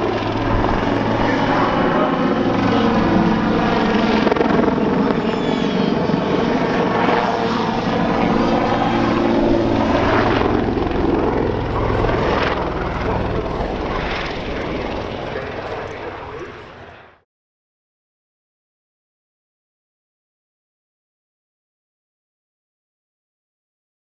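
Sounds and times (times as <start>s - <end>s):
helicopter flying overhead: 0.0s - 17.2s.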